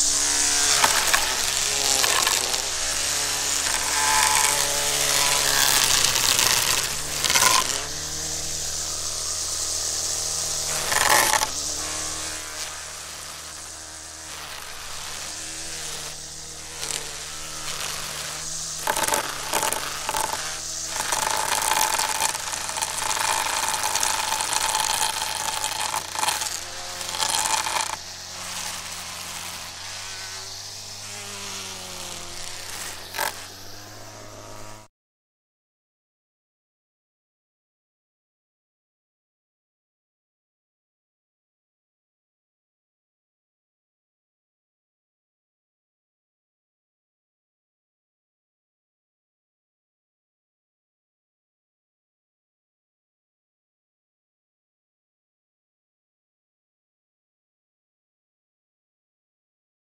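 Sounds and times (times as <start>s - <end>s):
weedwacker engine running: 0.0s - 34.9s
line striking wood: 0.1s - 8.4s, 10.6s - 12.7s, 14.5s - 33.6s.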